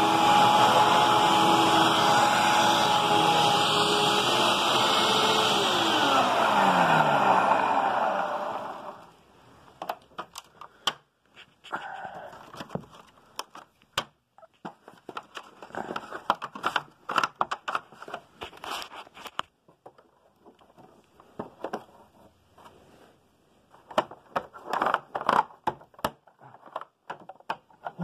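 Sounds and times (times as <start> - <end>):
plastic clicks and knocks: 9.8 - 11.1, 12.4 - 18.3, 23.8 - 28.0.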